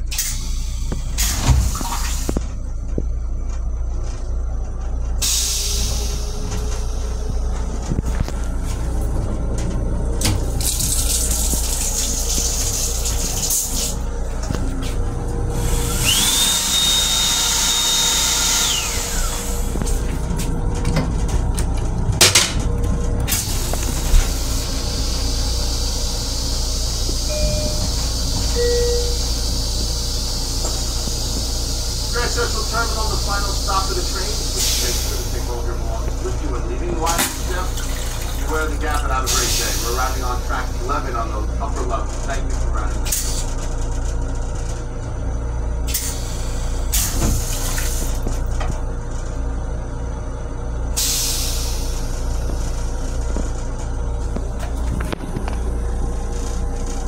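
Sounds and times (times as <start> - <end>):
toilet flushing: 0.0 - 2.4, 10.2 - 14.3, 15.5 - 20.1, 23.2 - 41.9, 45.9 - 48.5
steady low hum: 0.0 - 57.0
train hiss and rumble: 0.0 - 57.0.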